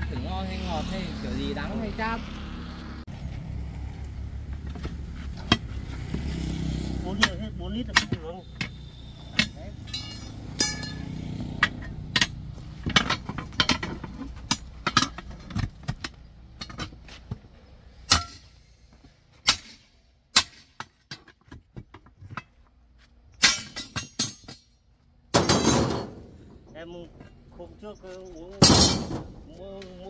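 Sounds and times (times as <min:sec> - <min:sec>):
tools clinking on metal: 0:07.2 - 0:15.3, 0:23.4 - 0:24.7.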